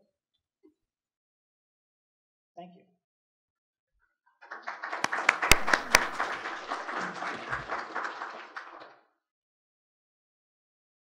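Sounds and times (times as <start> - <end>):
audience applauding: 4.4 - 9.1
sharp single claps: 4.7 - 8.8.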